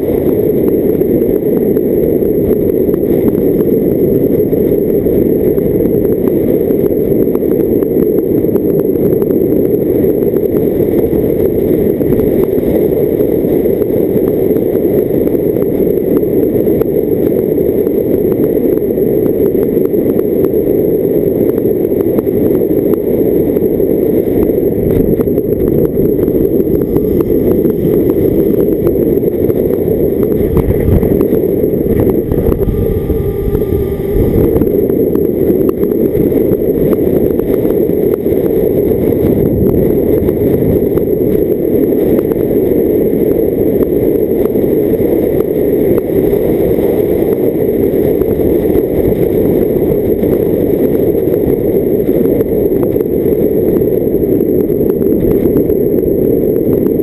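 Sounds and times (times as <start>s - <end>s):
wind and road noise: 0.0s - 57.0s
faint whining tones: 22.0s - 41.3s
car engine: 26.0s - 36.7s.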